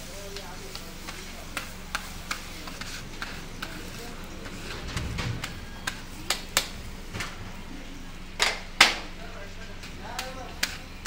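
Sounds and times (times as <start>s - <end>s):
faint sizzle: 0.0s - 11.0s
metal spatula striking griddle: 5.4s - 6.7s, 10.1s - 11.0s.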